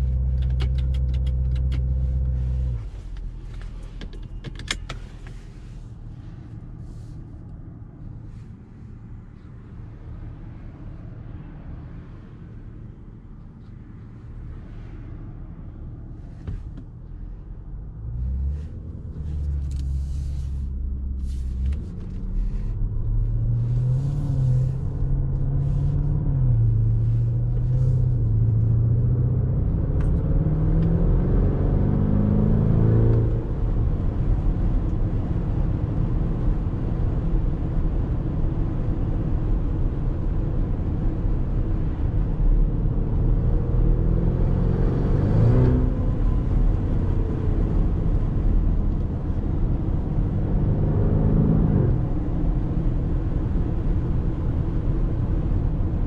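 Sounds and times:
road noise: 0.0 - 56.0
car engine accelerating: 17.6 - 38.2, 38.8 - 56.0.

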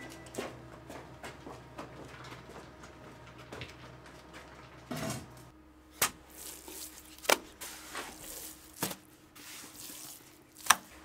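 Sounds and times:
trowel scraping metal wheelbarrow: 6.2 - 11.0.

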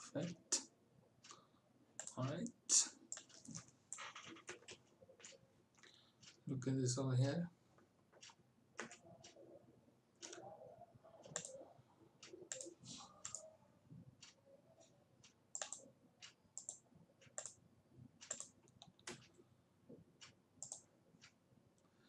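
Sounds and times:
mouse and keyboard clicking: 3.1 - 5.4, 8.2 - 9.4, 10.2 - 10.5, 11.2 - 11.6, 12.2 - 13.5, 15.5 - 17.6, 18.2 - 19.3, 20.2 - 21.3.

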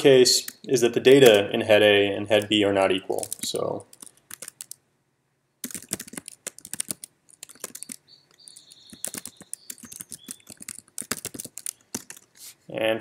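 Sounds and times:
computer keyboard typing: 2.3 - 4.8, 5.6 - 12.4.

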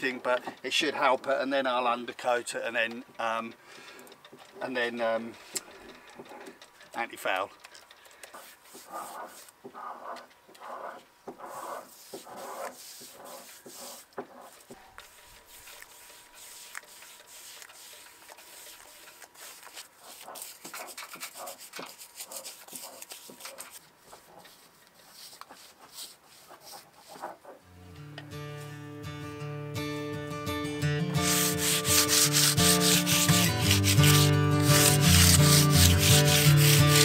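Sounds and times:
hand rubbing and scratching surface: 8.2 - 27.6, 31.2 - 37.0.

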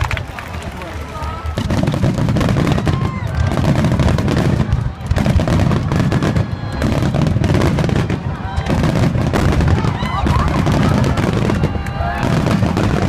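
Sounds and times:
fireworks booming and crackling: 0.0 - 13.0.

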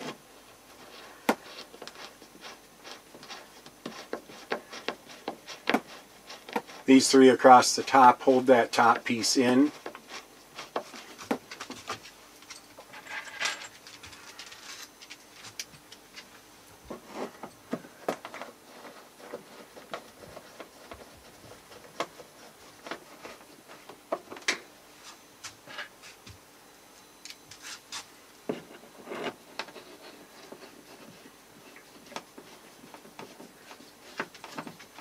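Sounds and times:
screwdriver scraping wood: 0.8 - 7.2, 7.9 - 12.0, 27.5 - 35.0.

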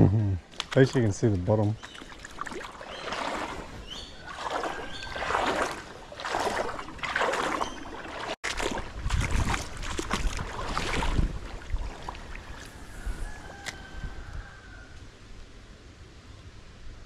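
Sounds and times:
creek water sloshing: 0.0 - 13.9
wind rumble on microphone: 8.6 - 15.5.

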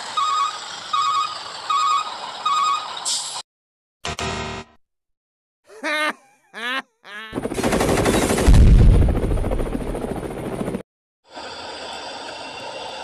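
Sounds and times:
machine-gun fire: 7.4 - 9.8
explosion: 8.4 - 9.2.

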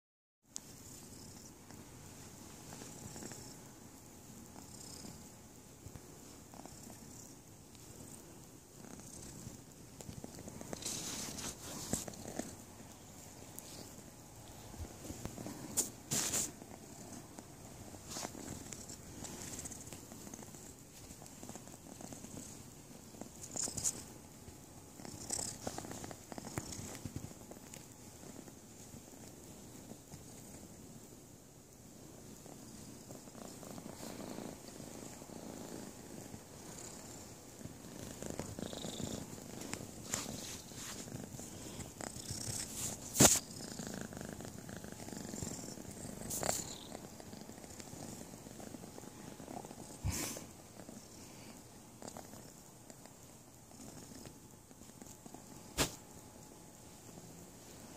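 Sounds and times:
kitten purring: 0.6 - 57.9
rustling and bumping on microphone: 13.2 - 24.1, 37.6 - 43.5, 54.8 - 56.1.

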